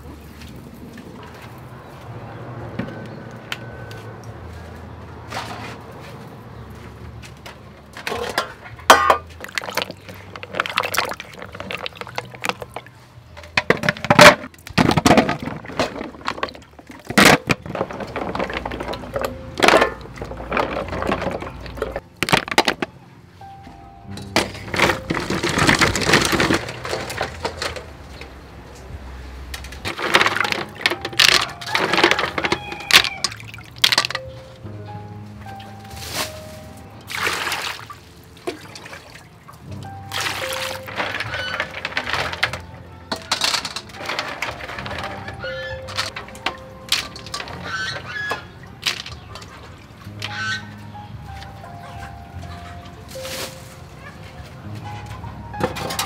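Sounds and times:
soft background music: 5.9s - 56.0s
water sloshing in bowl: 9.0s - 13.0s, 37.1s - 42.2s.

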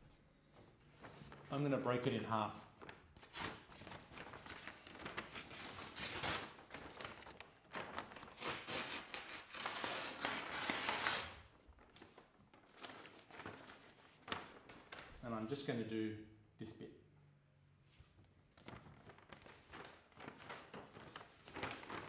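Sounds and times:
paper crinkling and tearing: 2.8s - 15.1s, 18.6s - 22.0s.

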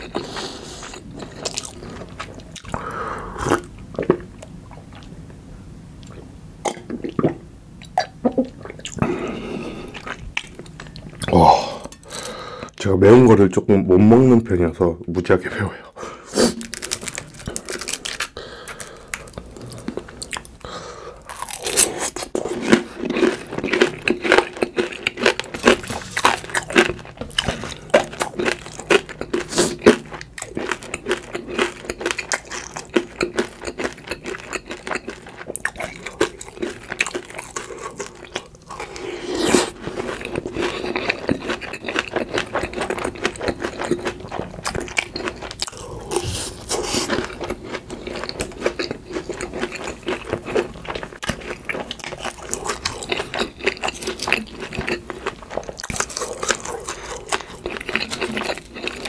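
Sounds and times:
crunching fried food: 16.4s - 59.0s.

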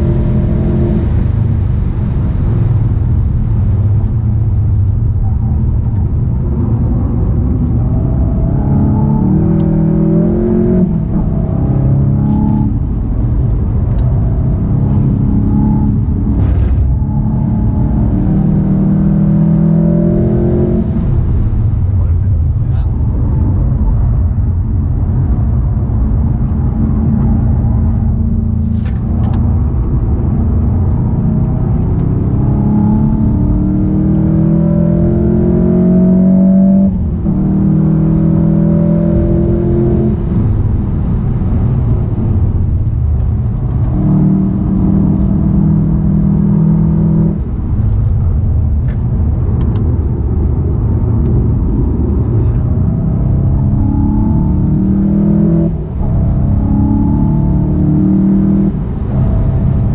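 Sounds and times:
car engine accelerating: 0.0s - 59.9s
road and wind noise: 0.0s - 59.9s.

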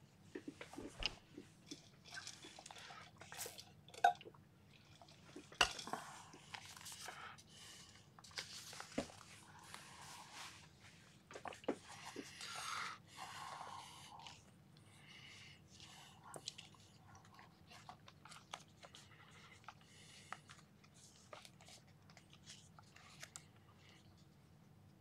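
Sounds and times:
objects rustling and clattering: 0.2s - 7.3s, 8.2s - 12.4s.

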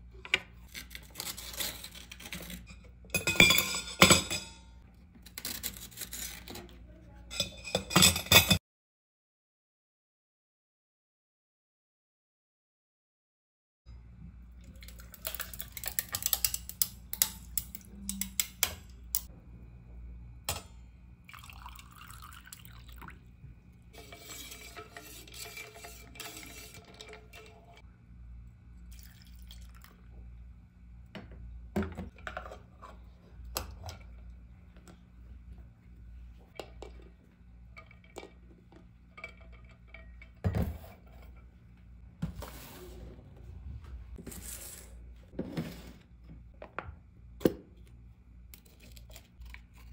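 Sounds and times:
water pouring into metal tumbler: 21.3s - 23.2s, 28.9s - 30.0s.

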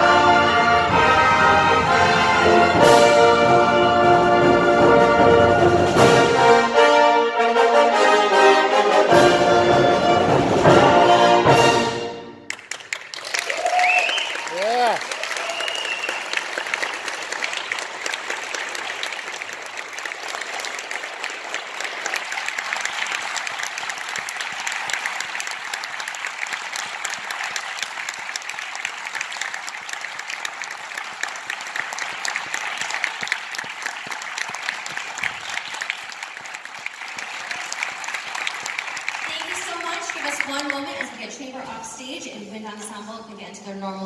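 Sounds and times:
audience applauding: 12.5s - 41.6s.

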